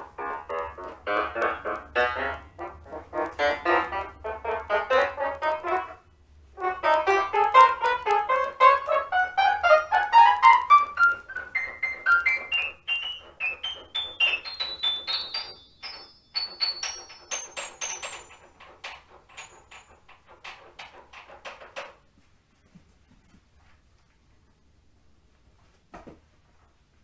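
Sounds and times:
piano notes: 0:00.0 - 0:21.6.

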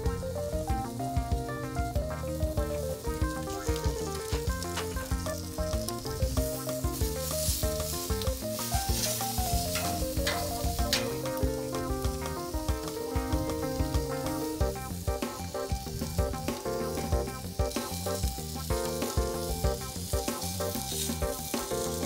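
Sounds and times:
background music with melody: 0:00.0 - 0:22.0
meat sizzling on grill: 0:00.0 - 0:22.0
metal tongs clicking on grate: 0:03.8 - 0:06.0, 0:08.1 - 0:12.9.

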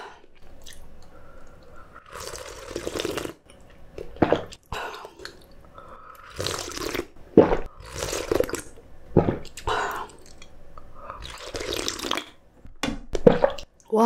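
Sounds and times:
wet slurp: 0:02.0 - 0:03.4, 0:06.2 - 0:10.5, 0:11.2 - 0:12.3.

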